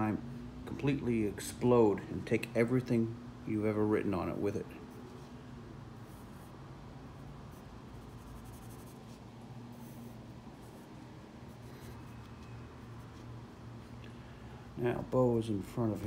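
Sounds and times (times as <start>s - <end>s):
steady low hum: 0.0s - 16.0s
pencil scratching on paper: 6.0s - 13.3s.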